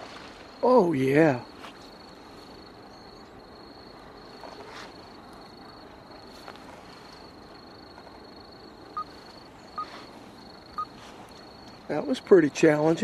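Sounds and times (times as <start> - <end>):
insect trilling: 7.0 - 13.0.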